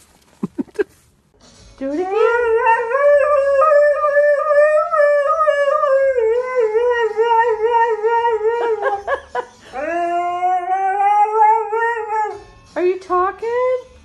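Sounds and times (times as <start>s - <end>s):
dog howling: 2.1s - 9.0s, 9.7s - 12.4s.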